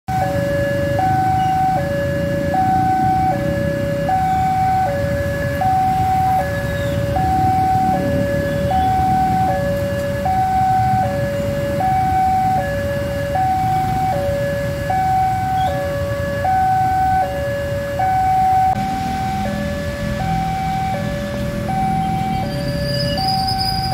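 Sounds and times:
level-crossing two-tone alarm: 0.1 - 23.9
low rumble of traffic: 0.1 - 23.9.

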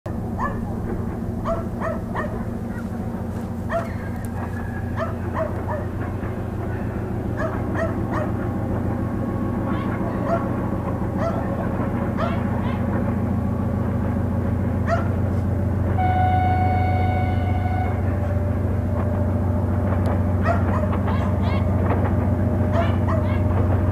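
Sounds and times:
diesel locomotive engine drone: 0.1 - 23.9
dog barking in short yelps: 1.4 - 2.9, 3.7 - 4.2, 12.2 - 12.8, 14.9 - 15.1, 20.4 - 21.7, 22.7 - 23.4.

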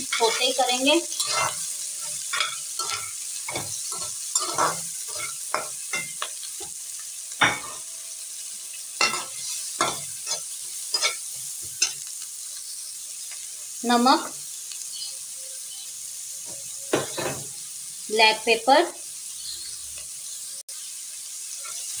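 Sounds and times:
metal spatula scraping a pan: 0.0 - 6.8, 7.4 - 7.9, 9.0 - 12.1, 21.5 - 22.0
hot oil sizzling: 0.0 - 22.0.

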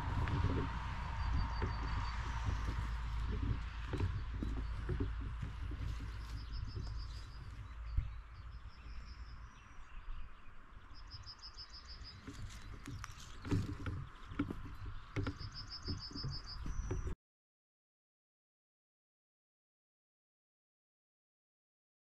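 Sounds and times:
soft knocks and rustles: 0.0 - 9.5, 12.0 - 17.2
wind rumbling on microphone: 0.0 - 17.2
songbird trilling: 1.2 - 17.1.

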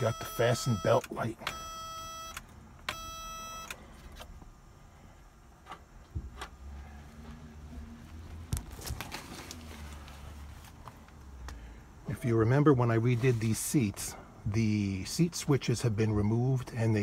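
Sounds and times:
seat belt warning buzzer: 0.0 - 4.3.

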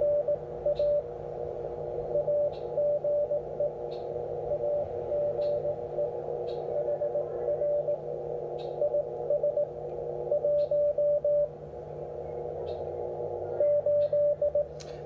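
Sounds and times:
morse code beeps: 0.0 - 1.1, 2.1 - 3.8, 4.4 - 8.0, 8.8 - 11.5, 13.6 - 14.7
faint steady tone: 0.0 - 14.8
radio band hiss: 3.4 - 10.9.

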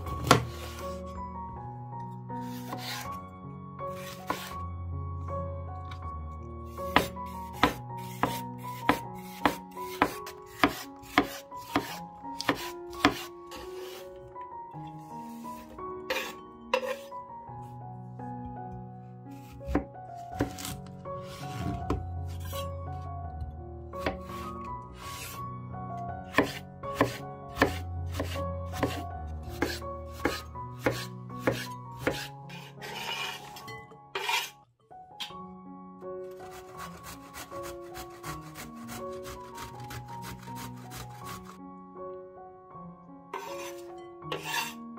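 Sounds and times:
soft background music: 0.0 - 44.9
knife striking cutting board: 0.2 - 0.8, 4.0 - 4.6, 6.9 - 14.0, 19.7 - 20.8, 26.3 - 29.0, 29.6 - 34.5
rustling scrape: 32.6 - 33.6, 34.2 - 34.6, 43.4 - 44.7.

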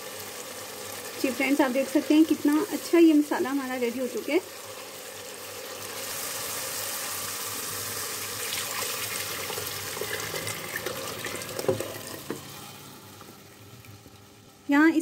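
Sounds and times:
masala sizzling in hot oil: 0.0 - 15.0
water poured splashing into pan: 8.0 - 12.6.

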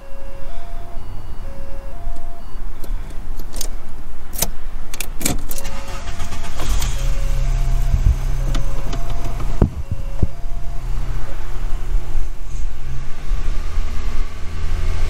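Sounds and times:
two-note electronic beep: 0.0 - 2.7, 7.1 - 11.2
car engine idling: 5.4 - 14.5.

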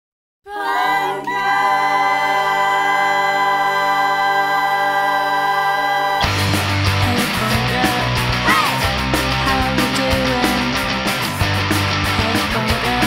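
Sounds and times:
voices singing in harmony: 0.5 - 10.8
punk rock band: 6.2 - 13.0.

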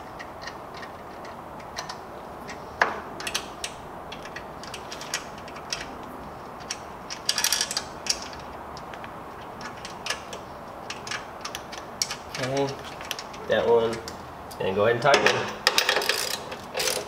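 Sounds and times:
wrench and bolts clinking on metal: 6.6 - 8.4, 15.0 - 17.0.

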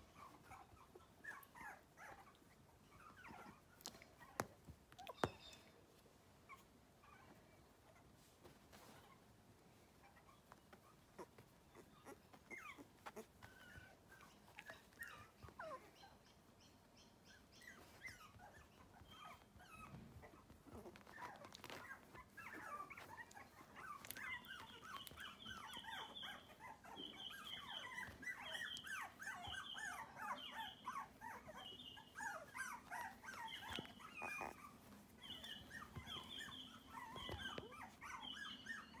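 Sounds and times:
puppies whimpering: 10.0 - 39.0.

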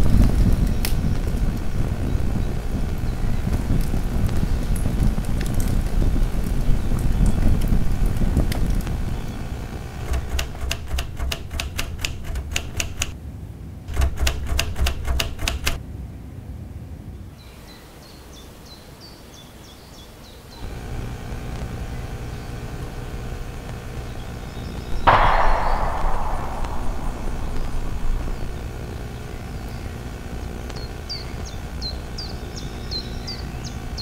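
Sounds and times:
typewriter keys clacking: 10.1 - 13.1, 14.0 - 15.8.

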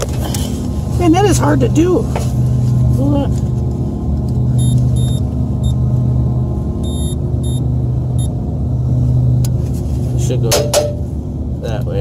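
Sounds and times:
machine hum: 0.0 - 10.2
short high-pitched beeps: 4.6 - 5.8, 6.8 - 7.6.

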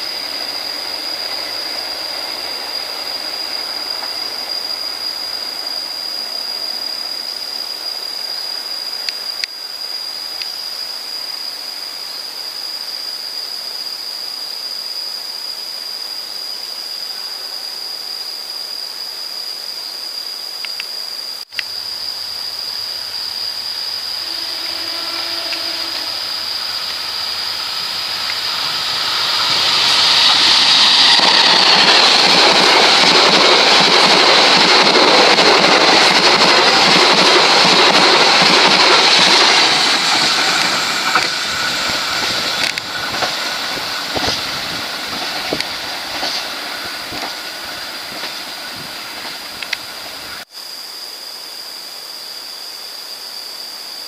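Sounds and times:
diesel locomotive approaching: 0.0 - 9.3, 21.7 - 50.4
distant train running: 0.0 - 9.3, 21.7 - 50.4
high-pitched insect drone: 0.0 - 54.0.

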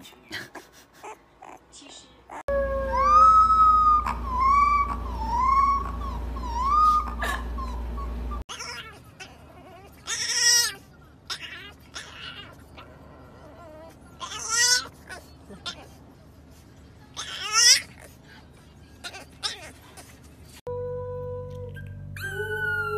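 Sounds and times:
high puppy howling cries: 2.3 - 12.6
puppy howling: 2.3 - 14.9, 21.5 - 22.9
low steady hum: 2.5 - 8.5, 20.2 - 22.9.

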